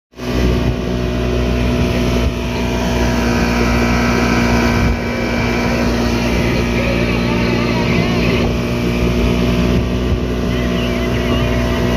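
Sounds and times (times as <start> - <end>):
motorboat engine drone: 0.1 - 11.9
water rushing along hull: 0.1 - 11.9.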